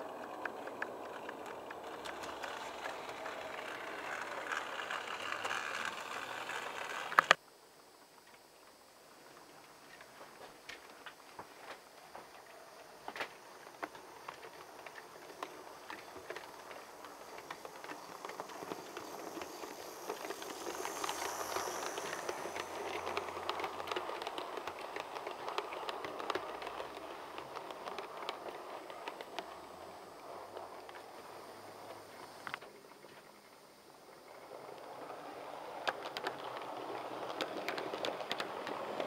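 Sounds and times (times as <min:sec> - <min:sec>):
model locomotive motor hum: 0:00.0 - 0:07.4, 0:12.4 - 0:32.6, 0:34.3 - 0:39.0
train wheels clicking over rail joints: 0:00.0 - 0:07.4, 0:10.0 - 0:32.6, 0:34.5 - 0:39.0.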